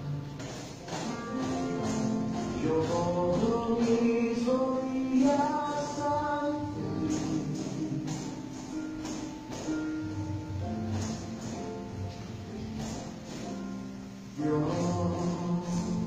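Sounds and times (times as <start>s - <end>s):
light percussion beat: 0.0s - 4.1s, 5.8s - 13.9s
worship song: 2.4s - 8.4s, 14.2s - 16.0s.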